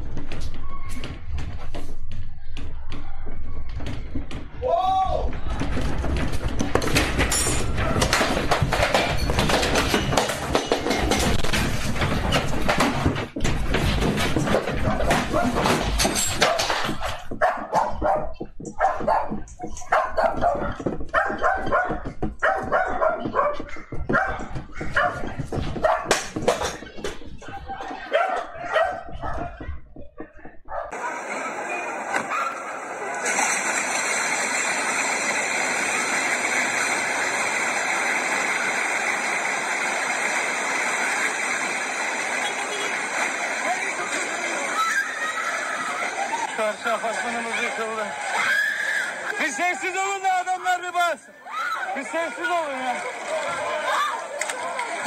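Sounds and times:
room rumbling and rattling: 0:00.0 - 0:32.1
dog barking: 0:14.8 - 0:15.7, 0:17.4 - 0:26.2, 0:28.0 - 0:29.6, 0:30.7 - 0:31.1, 0:32.3 - 0:32.7
building collapse rushing noise: 0:30.9 - 0:51.1.

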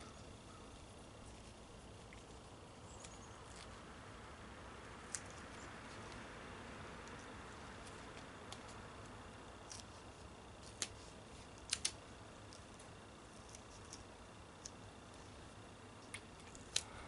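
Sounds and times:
duct tape clicks and crackles: 0:10.6 - 0:14.8.

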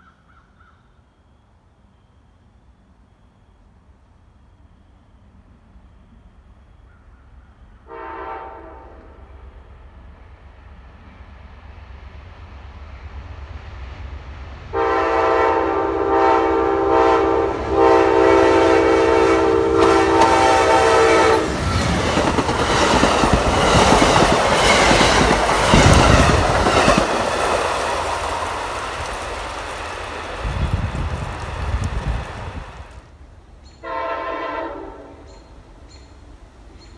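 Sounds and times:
train rumble and wheel clatter: 0:02.4 - 0:36.9
locomotive air horn blasts: 0:07.8 - 0:09.4, 0:14.7 - 0:21.6, 0:33.8 - 0:35.3.

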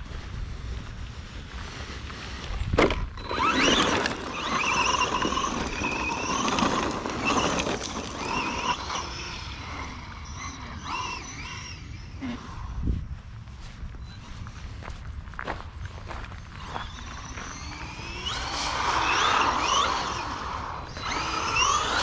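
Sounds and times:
electric motor whining: 0:02.8 - 0:12.9, 0:16.4 - 0:22.0.

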